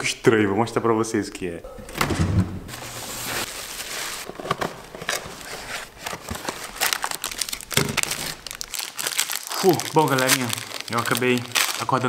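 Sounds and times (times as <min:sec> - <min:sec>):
cardboard box rustling: 0:02.7 - 0:11.7
plastic bag crinkling: 0:02.7 - 0:12.0
wrapped popsicle pulled from box: 0:05.1 - 0:12.0.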